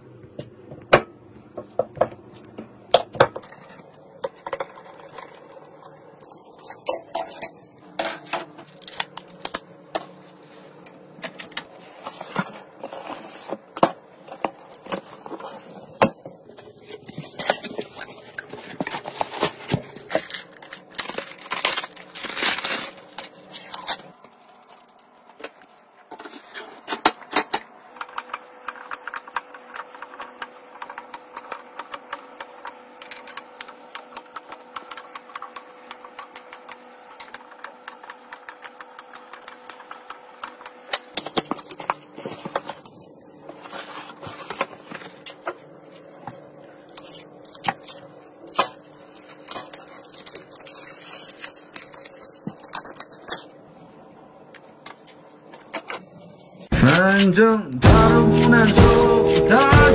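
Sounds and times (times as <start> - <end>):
plastic packaging crinkling: 8.6 - 26.8, 40.5 - 53.5.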